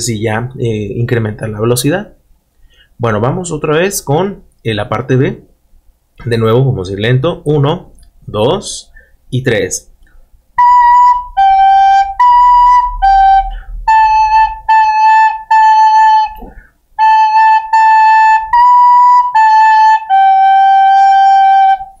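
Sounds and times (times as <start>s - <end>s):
recorder notes played slowly: 10.0s - 22.0s.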